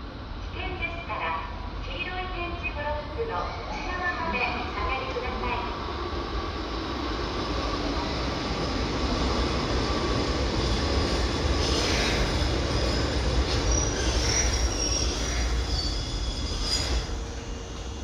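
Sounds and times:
electric train running rumble: 0:04.0 - 0:18.0
train wheels squealing: 0:10.6 - 0:18.0.

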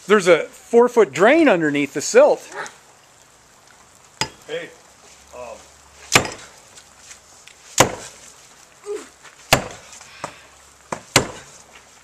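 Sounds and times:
digging tool chopping into silt: 0:06.1 - 0:06.5, 0:07.8 - 0:08.2, 0:09.5 - 0:09.9, 0:10.9 - 0:11.5.

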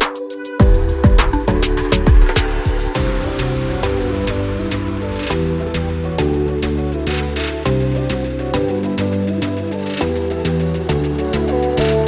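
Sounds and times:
drum beat: 0:00.0 - 0:07.0
held chords: 0:00.5 - 0:12.0.

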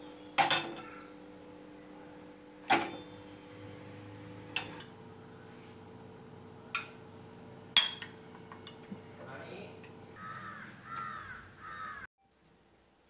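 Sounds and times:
metal tongs clinking on burner: 0:00.4 - 0:00.8.

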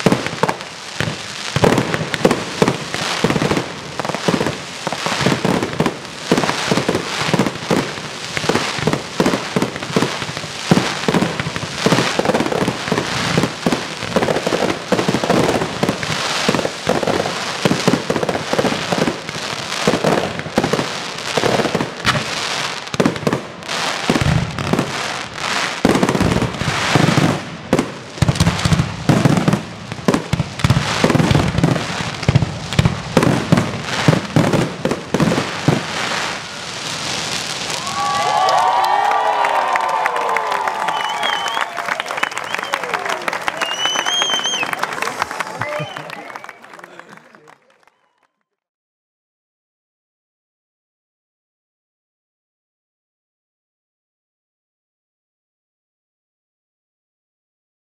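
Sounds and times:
deep firework booms: 0:00.0 - 0:25.0, 0:25.8 - 0:36.0
fireworks bursting and crackling: 0:00.0 - 0:47.6.

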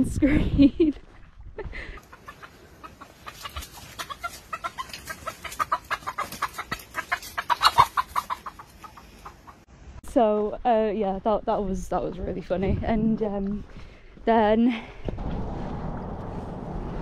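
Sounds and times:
chicken clucking: 0:02.0 - 0:09.7.

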